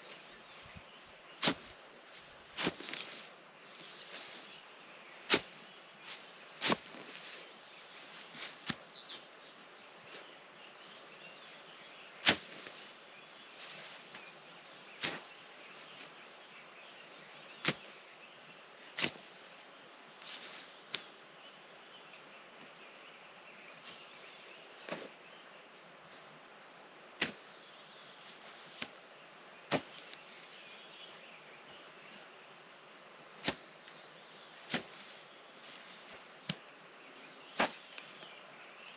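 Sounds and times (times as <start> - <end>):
hoe striking soil: 1.4 - 1.8, 2.5 - 3.2, 5.2 - 5.6, 6.6 - 7.1, 12.2 - 12.8, 15.0 - 15.4, 17.6 - 17.9, 19.0 - 19.2, 27.2 - 27.5, 29.7 - 30.2, 33.4 - 34.0, 34.6 - 35.1, 37.5 - 38.2.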